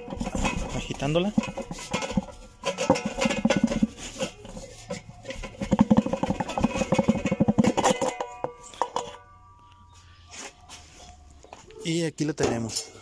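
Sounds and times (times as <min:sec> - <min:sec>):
metal part rattling and knocking: 0:00.0 - 0:09.3.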